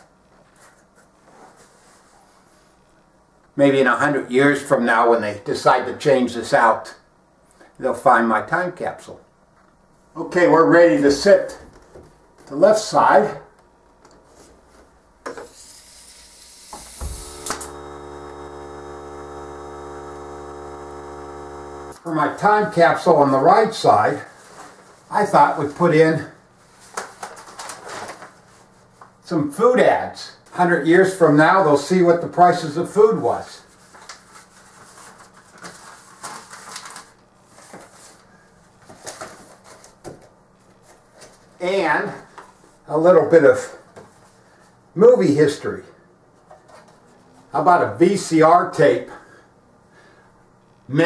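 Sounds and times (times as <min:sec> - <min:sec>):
air compressor humming: 0:15.4 - 0:22.5
nail gun firing: 0:16.7 - 0:17.8
paper flyers rustling and crinkling: 0:24.2 - 0:25.9, 0:26.6 - 0:29.1, 0:33.6 - 0:41.6.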